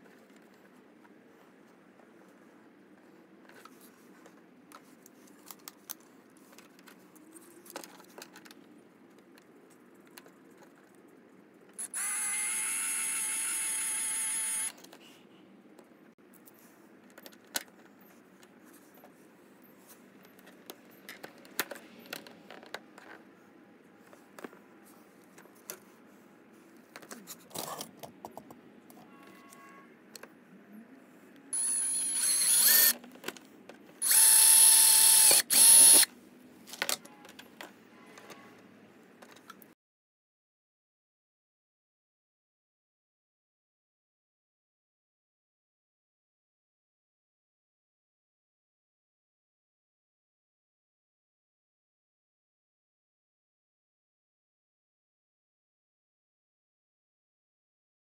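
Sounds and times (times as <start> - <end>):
cordless drill whining: 11.8 - 14.7, 31.6 - 33.0, 34.0 - 36.1
drill bit boring into plastic: 11.8 - 14.7, 31.6 - 33.0, 34.0 - 36.1.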